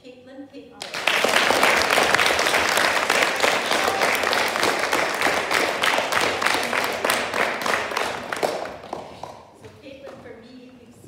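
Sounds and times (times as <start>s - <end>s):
audience applauding: 0.8s - 9.5s.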